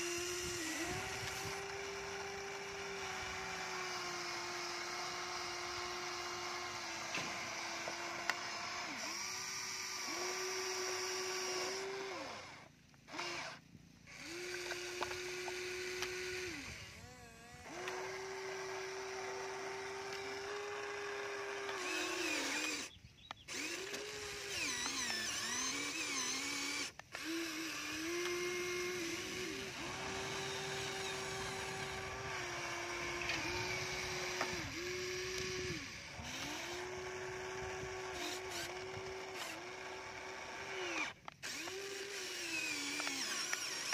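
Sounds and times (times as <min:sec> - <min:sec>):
small electric motors whining: 0:00.0 - 0:43.9.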